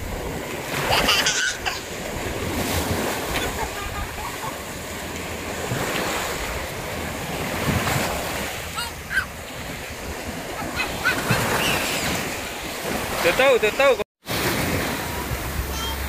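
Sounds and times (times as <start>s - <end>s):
small waves breaking: 0.0s - 16.0s
wind buffeting microphone: 1.8s - 13.3s.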